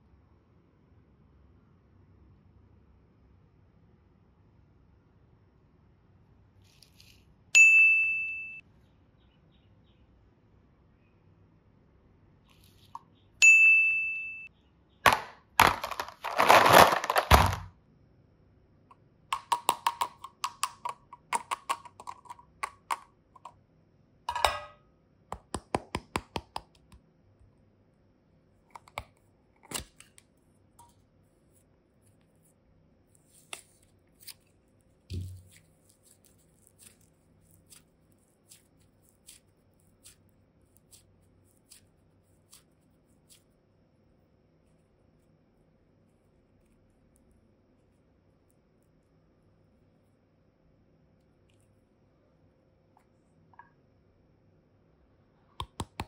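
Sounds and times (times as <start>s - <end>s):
plastic cases clicking and snapping: 15.1s - 17.6s.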